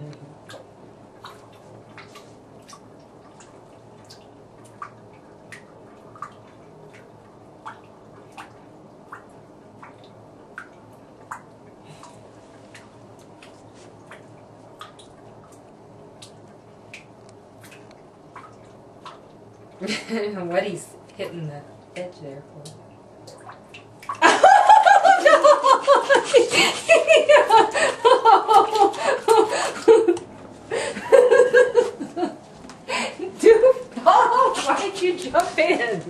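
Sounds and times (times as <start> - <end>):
faint steady hum: 0.0 - 36.0
water drops plinking in bathtub: 0.1 - 11.7, 22.6 - 24.9.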